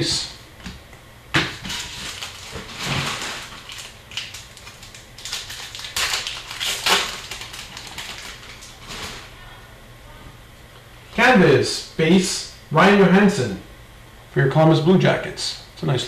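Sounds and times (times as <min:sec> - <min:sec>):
cards and packs rustling: 0:01.5 - 0:09.3.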